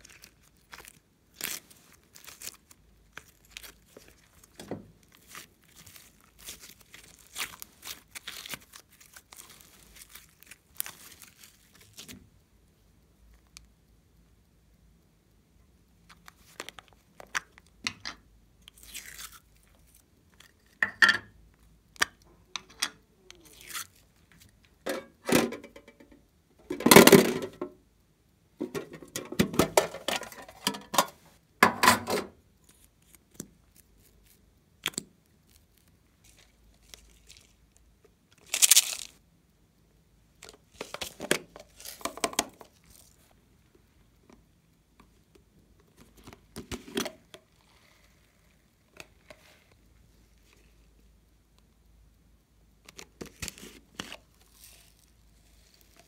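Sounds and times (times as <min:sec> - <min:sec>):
plastic containers clicking and rustling: 0:24.8 - 0:27.8, 0:28.6 - 0:32.3, 0:40.4 - 0:42.8.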